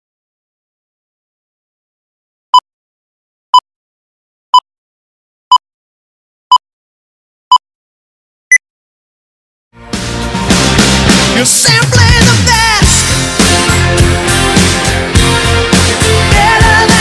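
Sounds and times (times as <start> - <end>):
music: 9.8 - 17.0.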